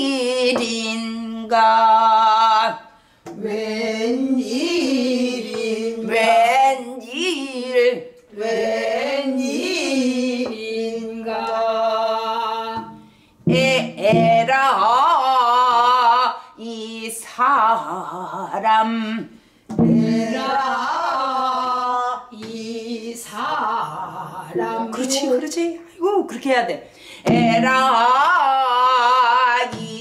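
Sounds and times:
woman singing with vibrato: 0.0s - 25.9s, 27.2s - 30.0s
woman breathing: 26.8s - 27.3s.

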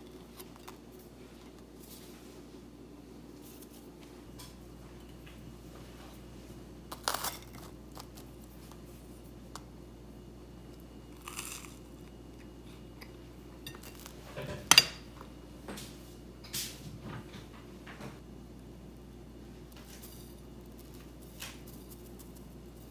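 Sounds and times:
crunching toast: 6.9s - 8.9s, 10.8s - 13.2s.

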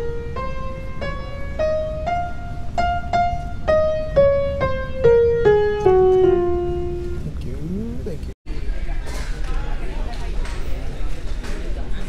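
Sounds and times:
upright piano melody: 0.0s - 8.2s.

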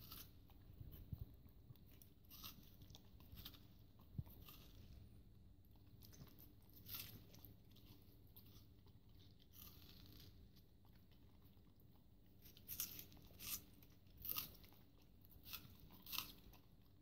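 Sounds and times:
dog crunching watermelon rind: 0.0s - 17.0s.

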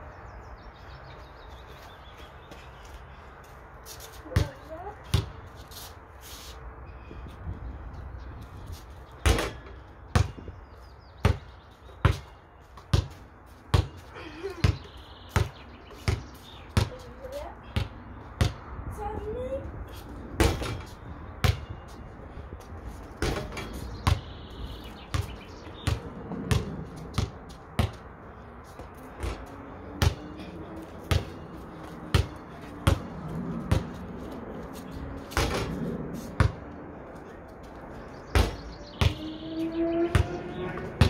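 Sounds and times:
basketball bouncing: 9.2s - 10.5s, 11.2s - 14.0s, 17.8s - 18.6s, 20.4s - 21.8s, 23.2s - 24.3s, 25.1s - 28.0s, 29.2s - 34.0s, 35.3s - 35.8s, 36.4s - 36.6s, 38.3s - 39.2s.

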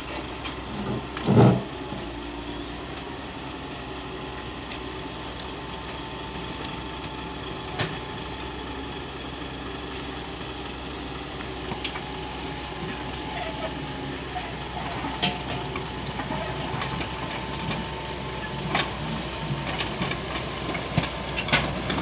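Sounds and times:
excavator diesel engine running: 0.0s - 22.0s.

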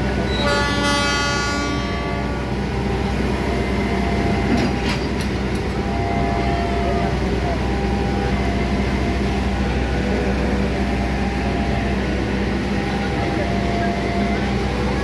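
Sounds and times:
train horn: 0.0s - 2.8s
train wheels rumbling on rail: 0.0s - 15.0s.

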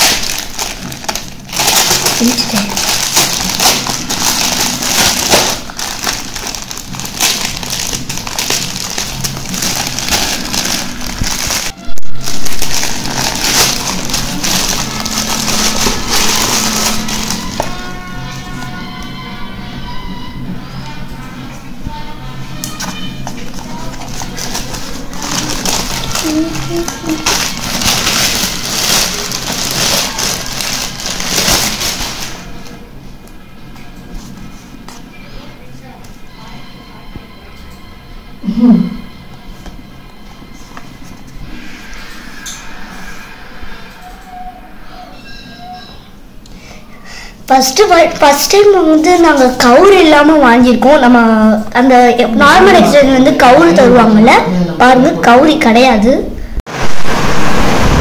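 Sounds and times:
plastic mailer crinkling and tearing: 0.0s - 18.0s, 22.8s - 32.8s.

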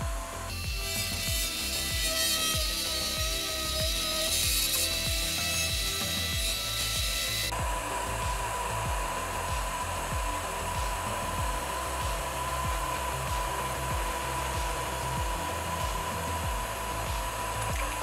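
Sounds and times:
background music with low beat: 0.0s - 18.0s
cnc router spindle milling metal: 0.0s - 18.0s
dust extraction vacuum running: 0.0s - 18.0s.

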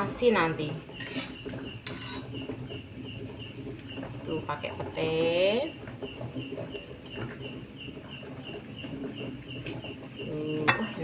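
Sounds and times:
cricket chirping: 5.7s - 11.0s.

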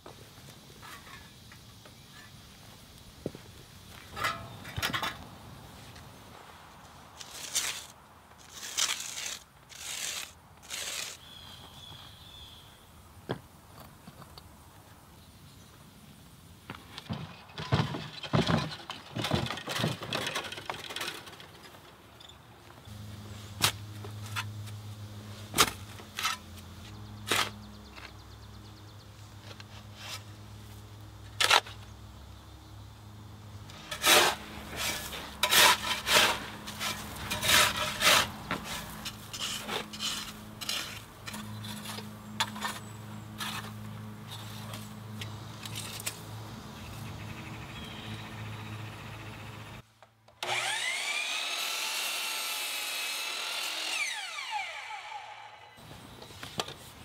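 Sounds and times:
miter saw motor whining: 50.4s - 55.8s.

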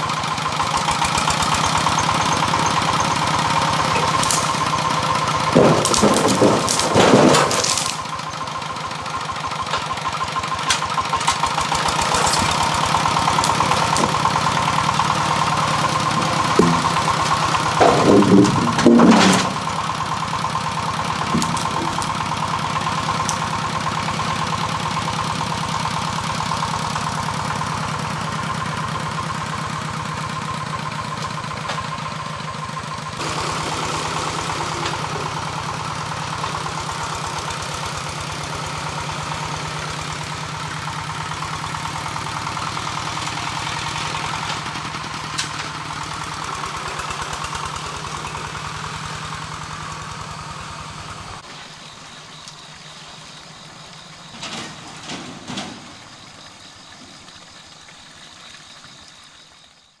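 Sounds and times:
farm vehicle engine running: 0.0s - 60.0s
short clatters: 5.5s - 8.1s, 10.6s - 14.7s, 15.8s - 19.9s.

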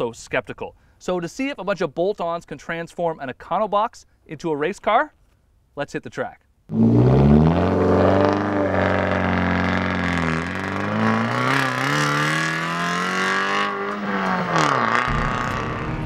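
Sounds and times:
race car accelerating hard: 6.7s - 16.0s.

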